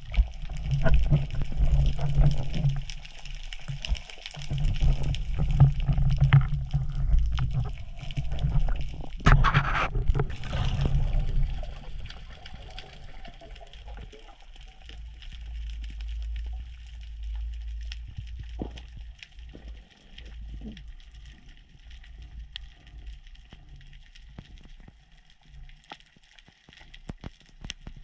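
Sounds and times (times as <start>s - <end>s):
underwater low rumble: 0.0s - 28.0s
water rushing burst: 6.6s - 13.7s.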